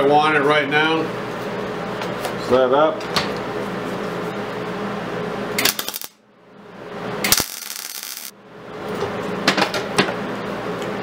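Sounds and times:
welding arc crackling: 5.6 - 6.2, 7.2 - 8.3.

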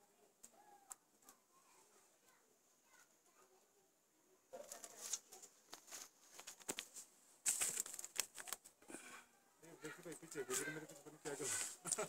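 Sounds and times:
plants rustling and crackling: 4.5 - 12.0.

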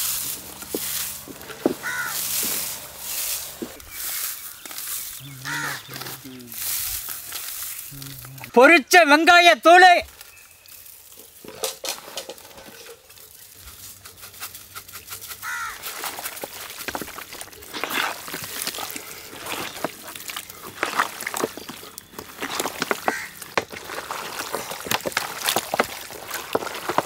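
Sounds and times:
crow cawing: 1.4 - 2.8, 5.2 - 6.3, 15.4 - 15.9, 23.0 - 23.5
wet squelching of mixing meat: 15.4 - 27.0.

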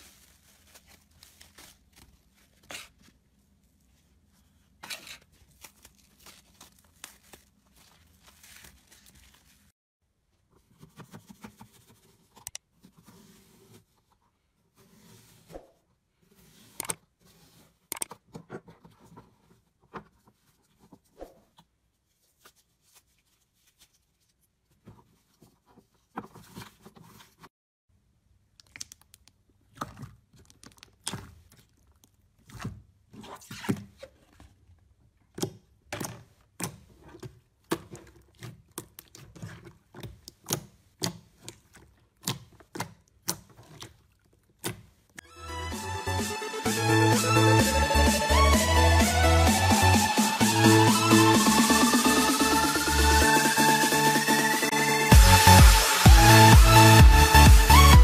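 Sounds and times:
knife cutting soap block: 35.4 - 45.0.

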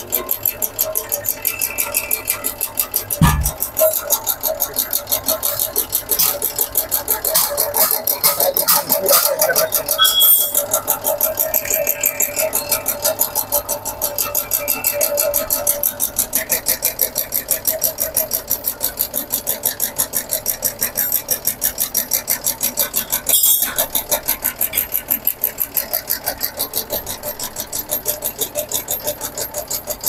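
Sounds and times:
leaf cutting machine chopping: 5.0 - 10.8.

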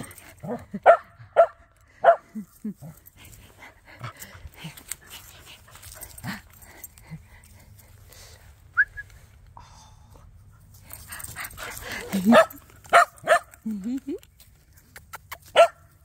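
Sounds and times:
dogs snuffling: 2.3 - 9.2, 10.2 - 15.6.

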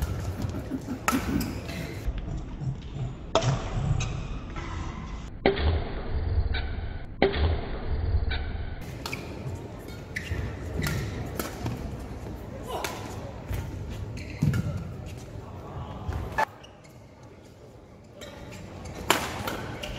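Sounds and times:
racket hitting shuttlecock: 10.8 - 11.8, 18.9 - 19.9.

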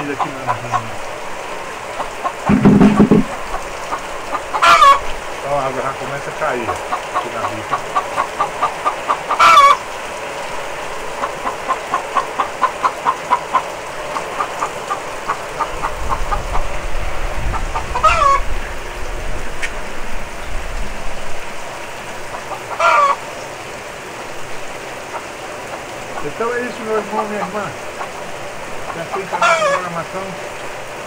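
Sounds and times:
chicken clucking: 0.0 - 1.0, 1.9 - 5.1, 6.5 - 9.8, 11.2 - 18.5, 22.3 - 23.2, 25.0 - 30.4
heavy rain hissing: 0.0 - 31.0
chicken drawn-out call: 1.9 - 5.2, 6.7 - 10.0, 17.4 - 18.6, 22.3 - 23.5, 25.0 - 30.2.

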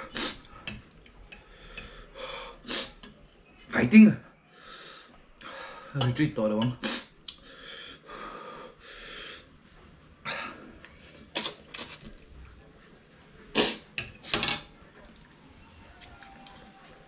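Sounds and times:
hissing breaths through lips: 0.0 - 0.6.

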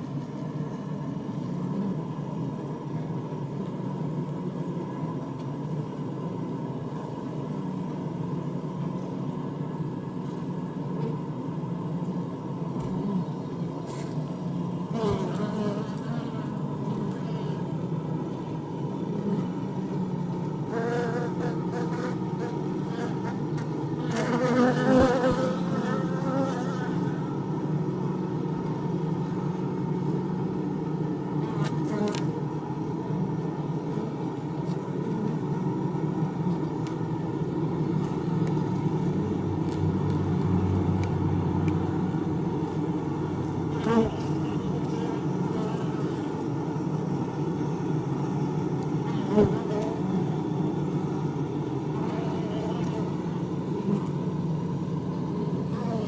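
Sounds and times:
bee colony droning: 0.0 - 56.0
individual bee buzzes: 14.9 - 17.7, 20.7 - 27.4, 31.4 - 32.4, 43.7 - 46.5, 49.0 - 50.9, 51.9 - 54.3, 55.3 - 56.0.

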